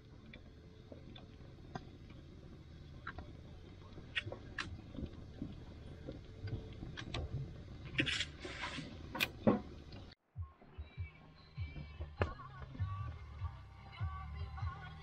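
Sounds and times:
logs crackling and popping: 0:00.0 - 0:10.2
low rumble of flame: 0:00.0 - 0:10.2
fire hissing flare: 0:01.0 - 0:09.9.

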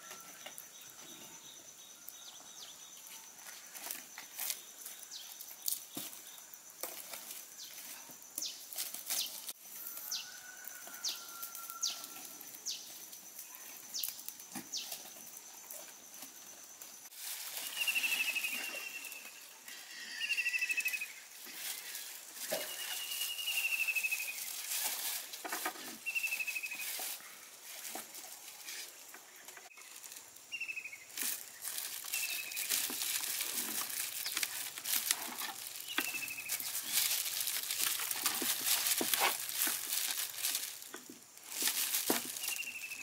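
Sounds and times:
sharp falling whistles: 0:17.5 - 0:21.2, 0:22.5 - 0:24.4
birdsong: 0:17.6 - 0:24.5, 0:35.7 - 0:37.1, 0:42.4 - 0:43.0
wood fire crackling: 0:31.1 - 0:43.0.

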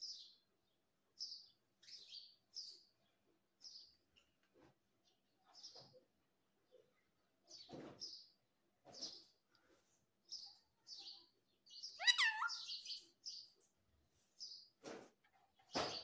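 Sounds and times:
parakeet chirping: 0:11.8 - 0:13.1
parakeet squawk falling in pitch: 0:12.0 - 0:12.6.

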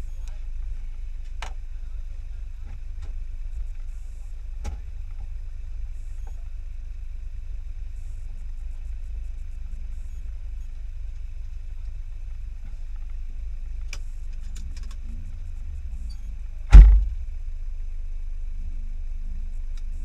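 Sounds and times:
car engine idling: 0:10.4 - 0:19.0.

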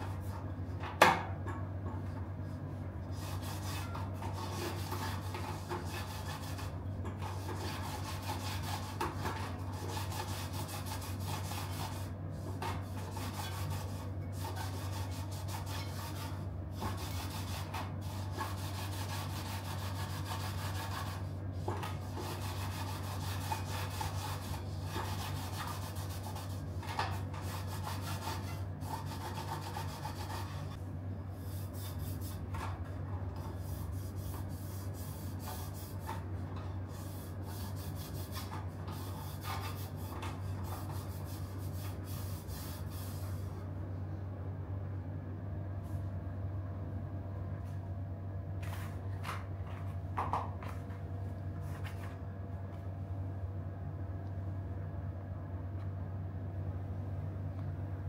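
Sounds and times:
steady low hum: 0:00.0 - 0:58.0
hand scrubbing bicycle rim: 0:03.2 - 0:30.8, 0:33.4 - 0:36.2, 0:36.9 - 0:43.5.

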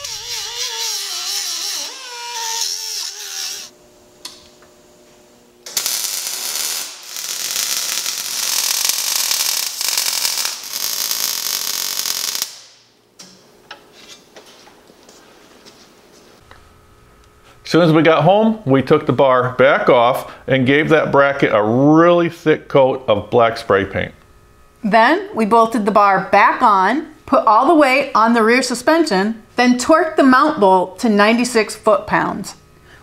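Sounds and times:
pneumatic grinder whining: 0:00.0 - 0:03.8, 0:05.6 - 0:12.6
arc welder crackling: 0:00.0 - 0:13.4.

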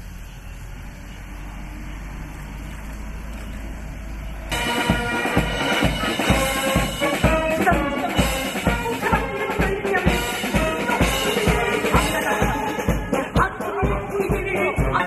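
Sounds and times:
instrumental music with drum beat: 0:04.5 - 0:15.0.

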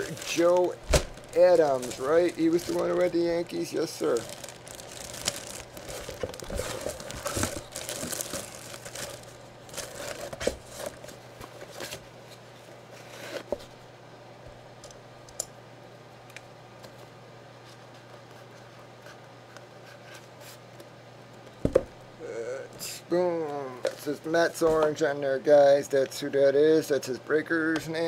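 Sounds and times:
plastic bag crinkling: 0:00.0 - 0:11.2
steady low hum: 0:00.0 - 0:28.0
cardboard box being handled: 0:04.0 - 0:11.1.

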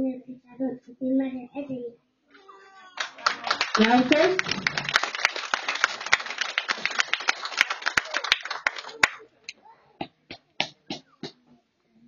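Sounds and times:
crowd applauding: 0:02.9 - 0:09.3.

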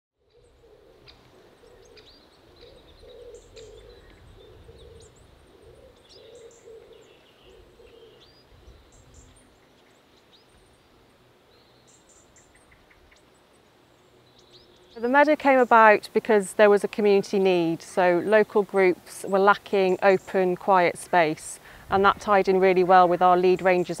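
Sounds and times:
low pulsing bird call: 0:00.2 - 0:16.0
songbirds chirping: 0:00.2 - 0:24.0.

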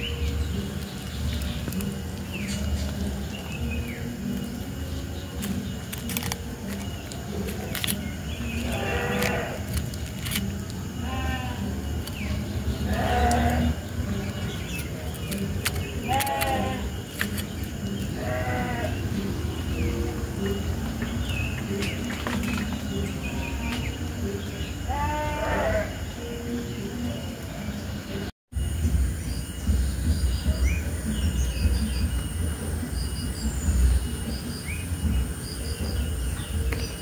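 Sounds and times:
sharp clicks: 0:05.4 - 0:10.9, 0:14.2 - 0:18.1
animal bleat-like cries: 0:08.6 - 0:09.7, 0:11.0 - 0:11.8, 0:12.8 - 0:13.8, 0:16.1 - 0:16.9, 0:18.1 - 0:19.0, 0:24.9 - 0:26.0.

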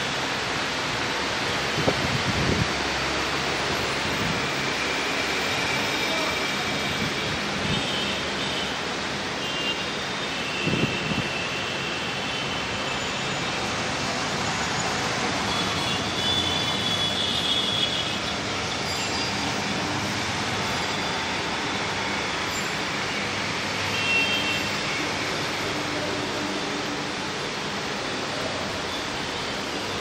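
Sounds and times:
road traffic noise: 0:00.0 - 0:30.0
brief high-pitched squeals: 0:04.6 - 0:07.4, 0:18.8 - 0:19.6.

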